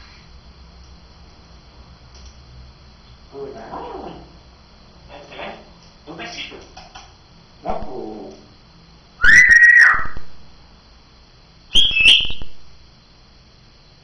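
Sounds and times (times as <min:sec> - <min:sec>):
parrot whistling: 0:09.2 - 0:10.2, 0:11.7 - 0:12.6.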